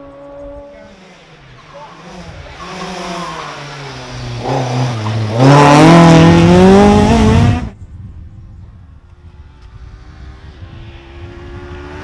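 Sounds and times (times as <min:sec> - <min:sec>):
rally car engine accelerating: 0:00.0 - 0:07.8.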